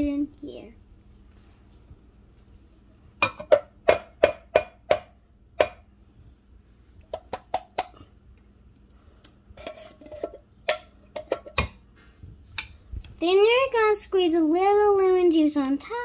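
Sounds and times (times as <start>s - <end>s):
spoon scraping inside can: 9.6s - 10.4s.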